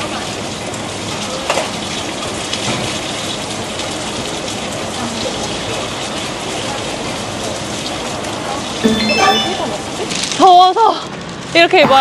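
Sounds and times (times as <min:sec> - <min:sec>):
hot oil sizzling: 0:00.0 - 0:08.8.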